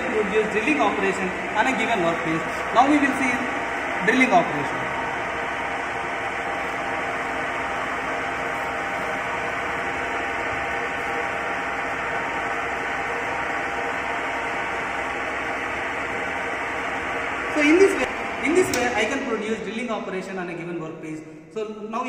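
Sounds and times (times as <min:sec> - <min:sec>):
lathe drilling workpiece: 0:00.0 - 0:19.3.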